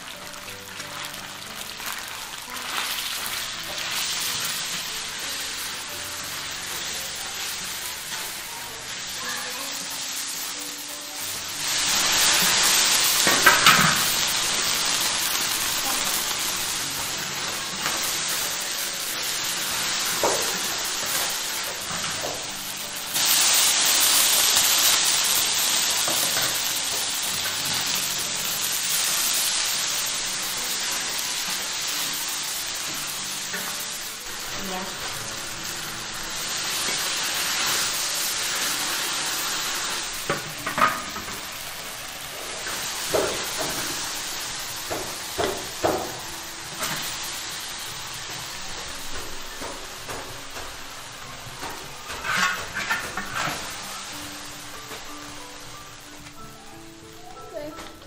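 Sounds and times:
meat sizzling in a wok: 0.0 - 58.0
spatula scraping a wok: 51.9 - 54.1.

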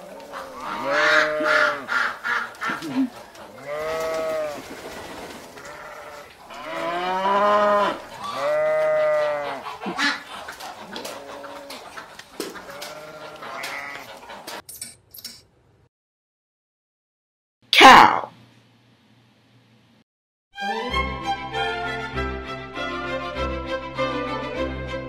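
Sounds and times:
long mooing calls: 5.7 - 9.6.

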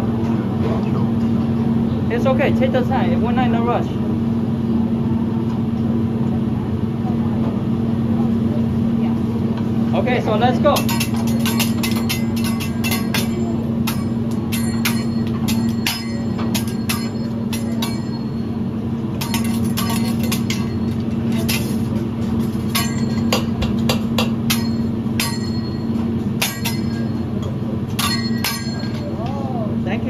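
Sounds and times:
steady hum: 0.0 - 30.0
metal utensils clinking on griddle: 10.7 - 18.5, 19.2 - 29.2.

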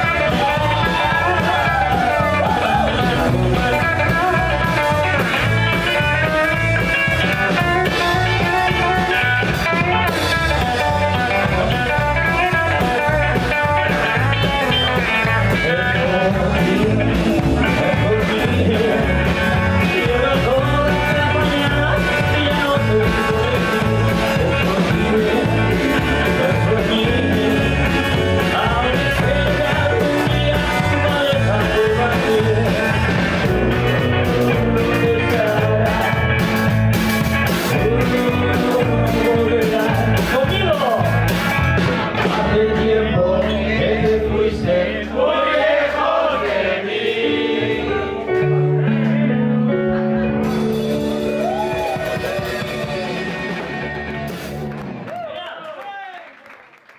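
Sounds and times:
man singing: 0.0 - 36.8, 37.4 - 45.4
rock band playing: 0.0 - 55.2.

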